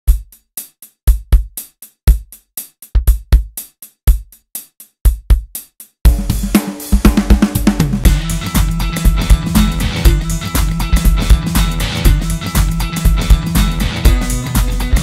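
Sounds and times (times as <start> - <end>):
drum machine beat: 0.0 - 15.0
bass and sustained chords: 8.0 - 15.0.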